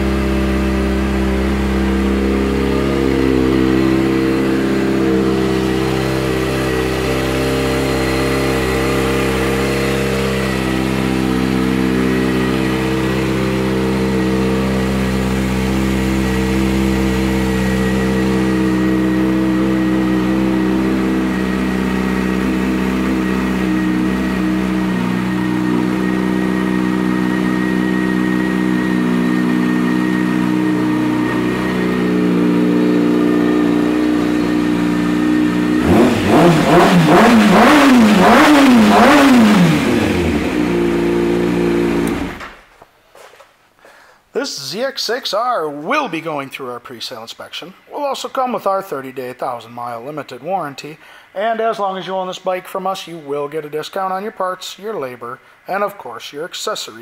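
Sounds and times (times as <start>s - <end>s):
motorcycle engine idling: 0.0s - 42.4s.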